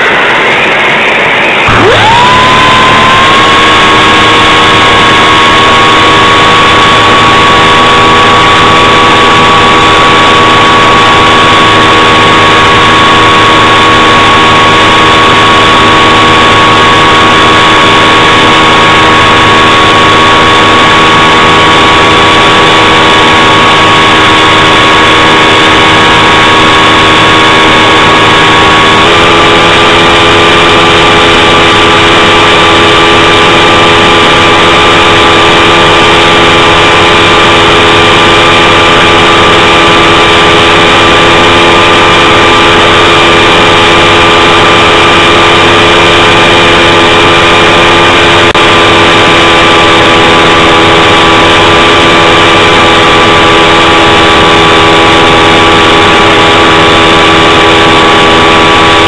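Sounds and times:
propeller aircraft engine: 0.0 - 59.0
whine-like tone: 0.0 - 59.0.

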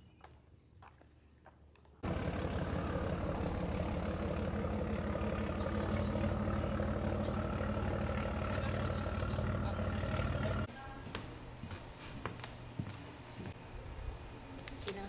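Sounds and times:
heavy engine humming: 2.0 - 10.7.

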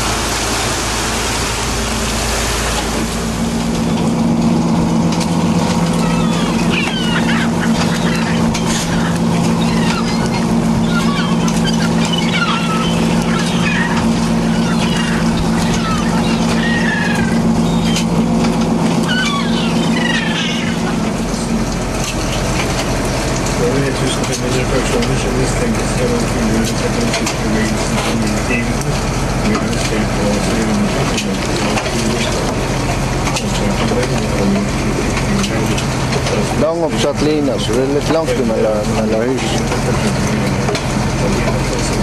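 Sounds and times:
boat engine humming: 0.0 - 42.0
gulls calling: 0.0 - 42.0
rushing wind and water: 0.0 - 42.0
gull calls: 5.8 - 18.3, 18.9 - 21.6.

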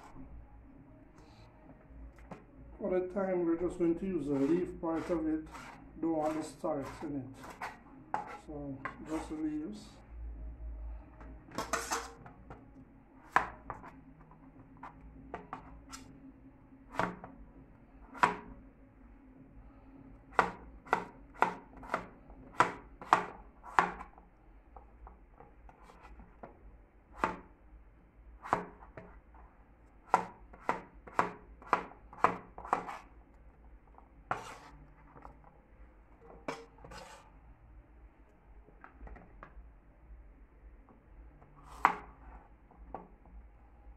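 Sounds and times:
knife chopping on plastic board: 4.4 - 9.3, 13.3 - 13.9, 16.9 - 17.3, 18.1 - 18.5, 20.3 - 24.2, 27.1 - 27.5, 28.4 - 29.1, 30.0 - 33.1, 34.3 - 35.3, 41.6 - 42.2.

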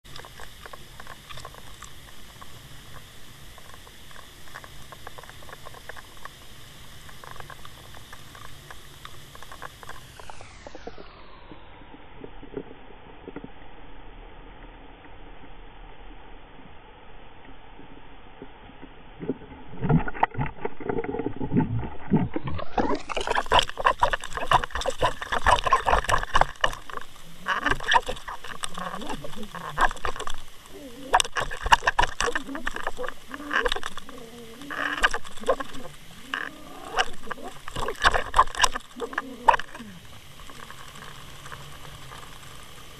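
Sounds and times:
underwater water rushing: 0.1 - 11.0, 19.2 - 42.9
small clicks and ticks: 0.1 - 11.2, 18.7 - 42.9
fish thrashing on a line: 22.2 - 42.3.

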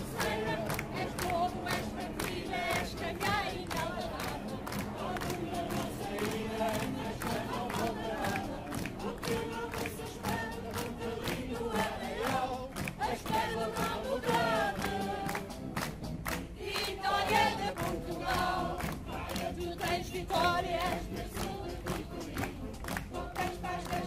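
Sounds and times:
crowd noise: 0.0 - 15.7
group singing folk song: 0.0 - 24.0
hand clapping: 0.0 - 24.0.

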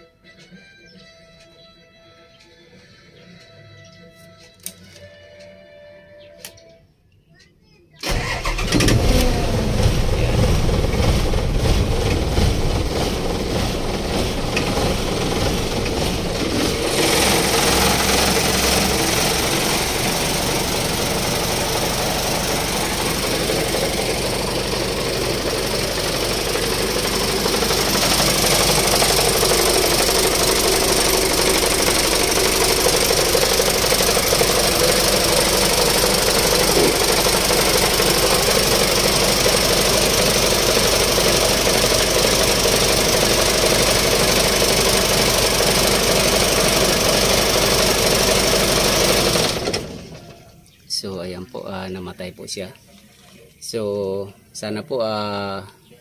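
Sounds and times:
diesel engine running with knock: 8.1 - 50.4.

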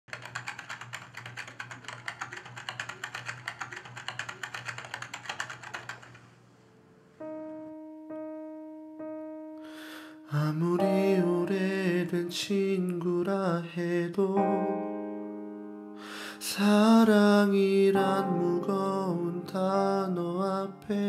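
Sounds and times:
fast typing on keyboard: 0.1 - 6.3
held piano notes: 6.8 - 21.0.

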